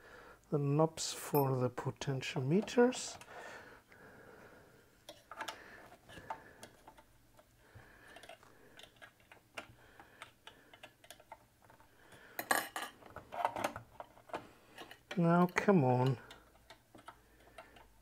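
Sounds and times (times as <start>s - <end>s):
clicks and taps of small tools: 5.0s - 7.5s, 8.1s - 11.8s, 12.4s - 18.0s.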